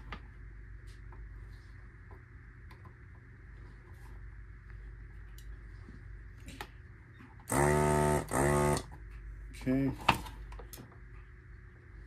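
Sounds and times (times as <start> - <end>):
low steady hum: 0.0 - 12.0
desoldering pump buzzing: 7.4 - 9.0.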